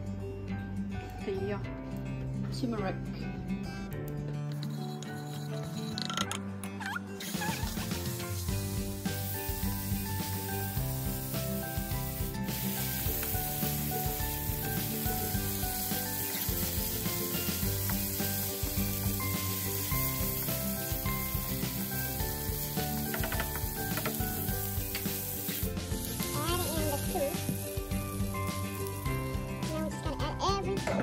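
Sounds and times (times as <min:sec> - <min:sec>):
background music: 0:00.0 - 0:31.0
food sizzling in hot oil: 0:07.2 - 0:29.7.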